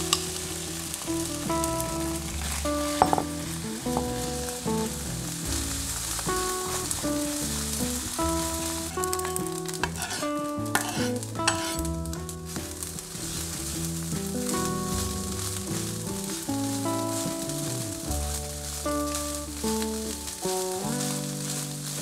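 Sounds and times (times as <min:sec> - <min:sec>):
background music: 0:00.0 - 0:22.0
rice sizzling in a pan: 0:00.0 - 0:22.0
spatula scraping and clicking: 0:09.0 - 0:11.9.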